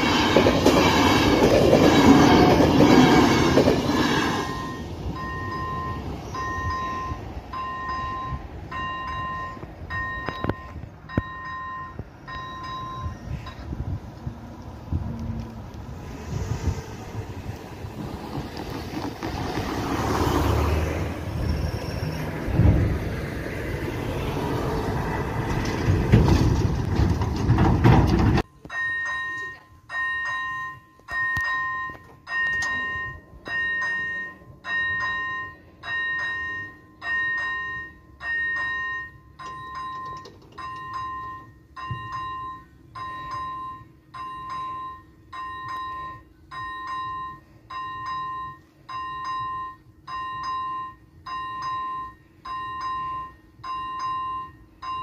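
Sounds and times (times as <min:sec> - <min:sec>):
level crossing warning bell: 0:00.0 - 0:13.8, 0:28.4 - 0:55.0.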